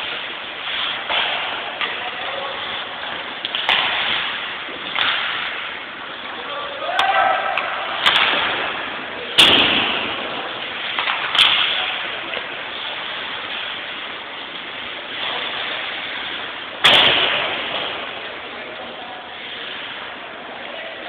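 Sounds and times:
crowd voices: 0.0 - 21.0
puck and sticks striking boards: 0.0 - 21.0.

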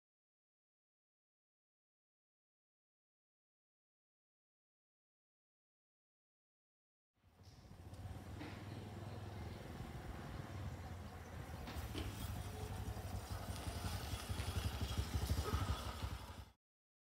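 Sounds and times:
motorcycle engine approaching: 7.3 - 16.6.

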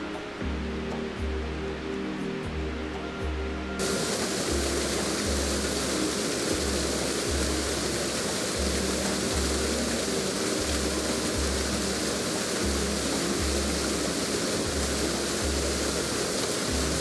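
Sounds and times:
background music with bass: 0.0 - 17.0
waterfall roaring: 3.8 - 17.0.

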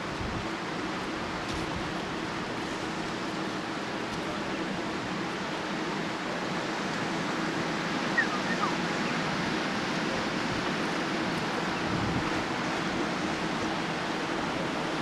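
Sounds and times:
short high chirps: 8.2 - 8.8
wind on microphone: 11.8 - 12.6.

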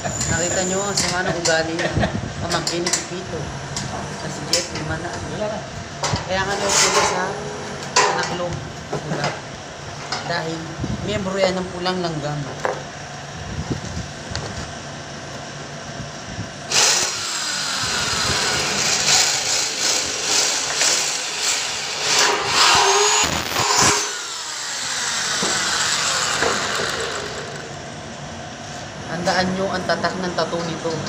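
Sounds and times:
drill bit scraping metal: 16.7 - 27.6
electric drill boring through metal: 16.7 - 27.8.

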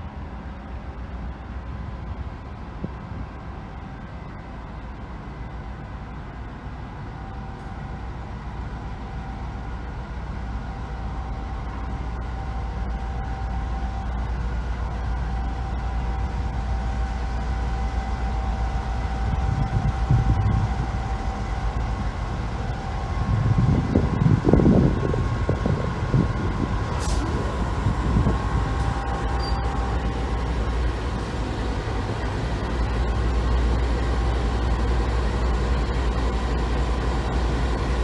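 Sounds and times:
locomotive engine rumble: 0.0 - 38.0
thin level whine: 26.8 - 37.9.

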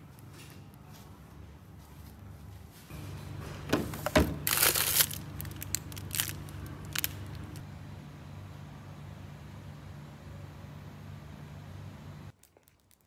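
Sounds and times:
steady low hum: 0.0 - 12.4
plastic wrappers crinkling: 4.0 - 7.6, 12.3 - 13.0.

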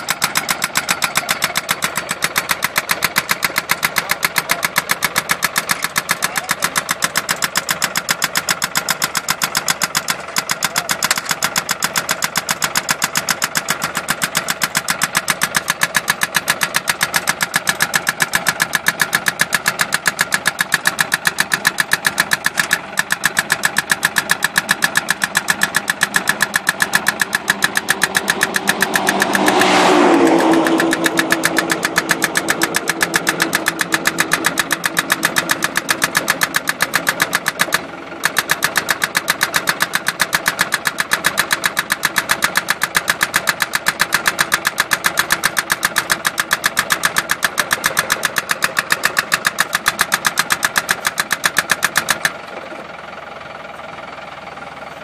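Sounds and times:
post driver pounding: 0.0 - 52.6
engine running: 0.0 - 55.0
rushing sound: 27.4 - 33.2.

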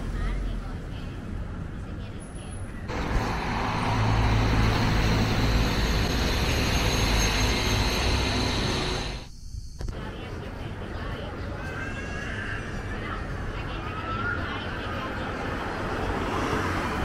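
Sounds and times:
tyre and road noise: 2.2 - 9.3, 12.9 - 17.0
vehicle engine hum: 2.7 - 9.3.

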